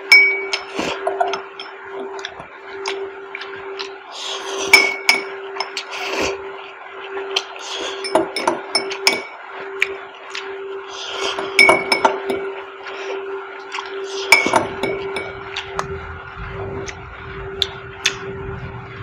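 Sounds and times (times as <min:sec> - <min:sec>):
steady low hum: 0:00.0 - 0:19.0
fork clinking against glass bowl: 0:04.7 - 0:05.9, 0:08.0 - 0:09.4, 0:11.3 - 0:12.5, 0:14.3 - 0:15.4.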